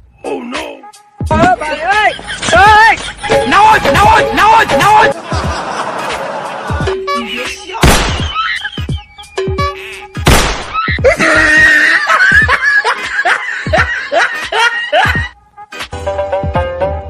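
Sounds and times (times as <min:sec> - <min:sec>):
music: 0:00.0 - 0:17.0
person laughing: 0:08.2 - 0:10.1, 0:10.8 - 0:15.3.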